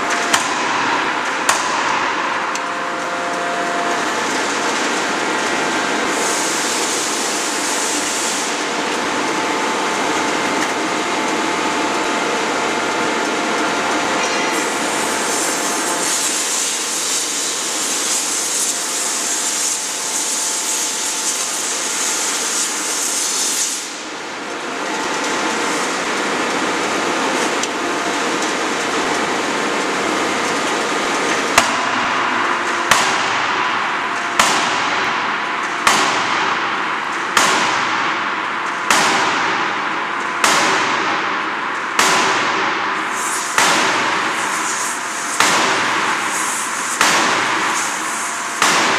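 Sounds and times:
loud steady hiss: 5.9 - 10.3, 14.5 - 24.4, 42.4 - 48.9.

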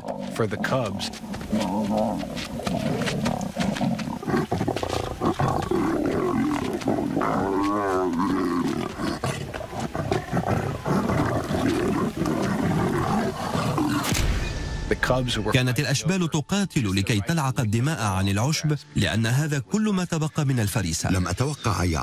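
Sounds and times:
cubs fighting: 0.0 - 14.1
lions growling: 0.0 - 14.1.

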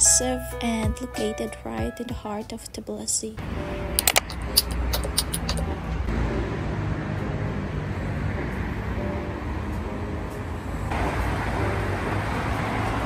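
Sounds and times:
passing cars rumbling: 3.4 - 13.0.

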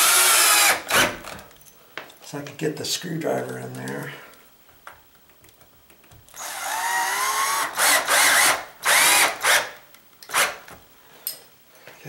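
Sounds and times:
cordless drill driving screw: 0.0 - 1.4, 6.3 - 9.7.

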